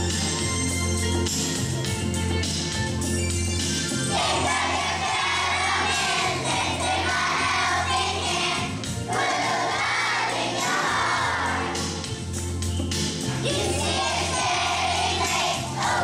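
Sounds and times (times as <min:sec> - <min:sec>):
instrumental accompaniment: 0:00.0 - 0:16.0
children's choir singing: 0:04.1 - 0:12.1, 0:13.4 - 0:16.0.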